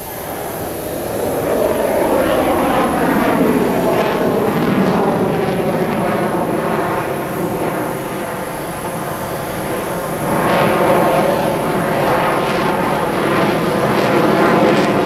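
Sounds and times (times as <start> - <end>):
jet roar passing overhead: 0.0 - 15.0.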